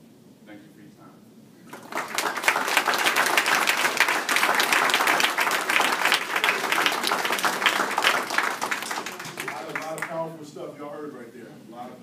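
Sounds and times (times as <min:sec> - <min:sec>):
audience applause: 0:01.7 - 0:10.3.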